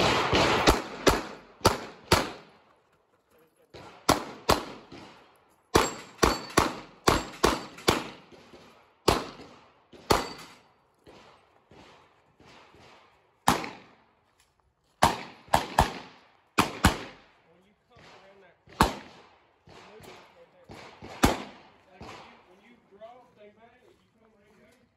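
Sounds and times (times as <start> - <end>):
pistol gunshots: 0.0 - 2.6, 3.7 - 14.0, 15.0 - 17.4, 18.0 - 22.5.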